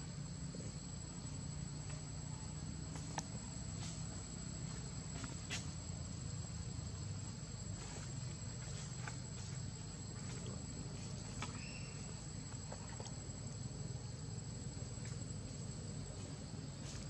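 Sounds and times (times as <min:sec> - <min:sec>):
high insect drone: 0:00.0 - 0:17.0.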